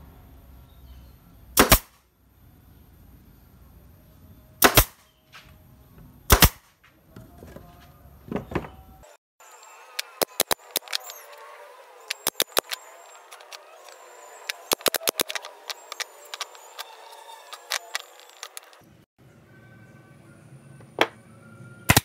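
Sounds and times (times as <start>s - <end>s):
nail gun firing: 1.6s - 2.0s, 4.6s - 5.0s, 6.3s - 6.7s.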